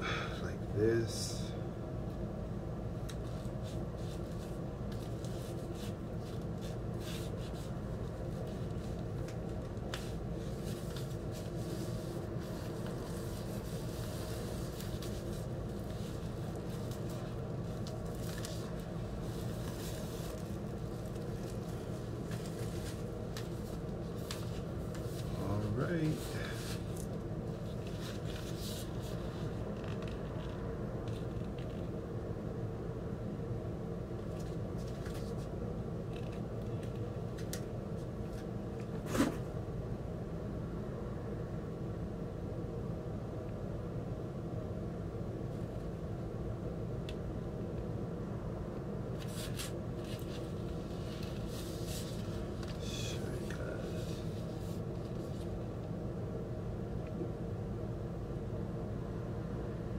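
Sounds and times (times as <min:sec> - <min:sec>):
steady low hum: 0:00.0 - 0:59.9
plastic and cardboard rustling: 0:03.2 - 0:30.2, 0:49.2 - 0:55.6.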